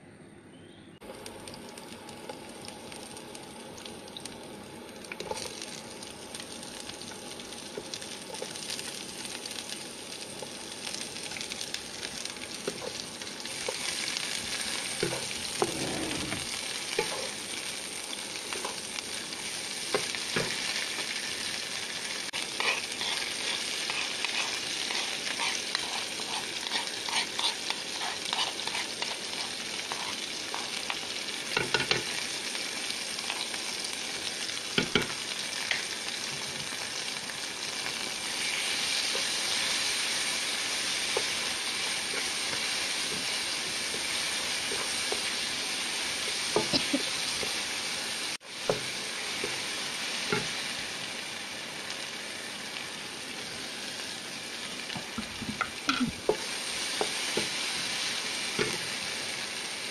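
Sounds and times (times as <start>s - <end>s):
food sizzling in hot oil: 1.1s - 59.9s
wooden spatula scraping a wok: 15.0s - 17.3s, 22.4s - 31.0s.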